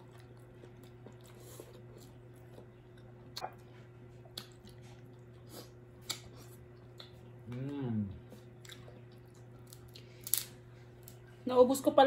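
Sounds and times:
chewing: 0.0s - 10.4s
faint steady hum: 0.0s - 12.0s.

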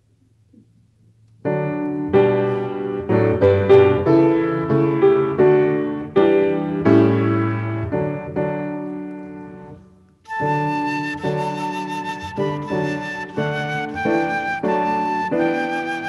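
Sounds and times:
slow classical piano piece: 0.0s - 16.0s.

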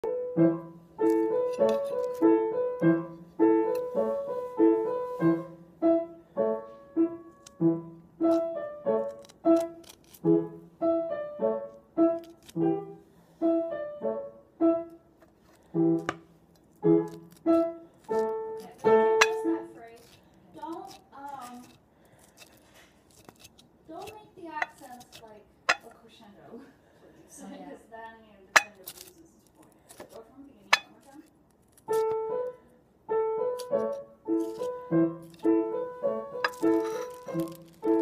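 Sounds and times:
piano music: 0.0s - 15.1s, 16.8s - 19.8s, 31.9s - 38.0s.

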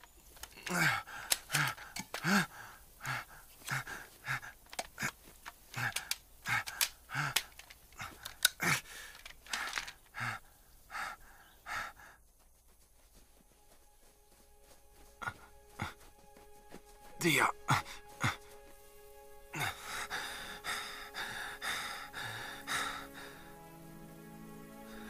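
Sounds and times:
man panting and gasping: 0.4s - 12.3s, 15.0s - 18.8s, 19.5s - 23.7s.

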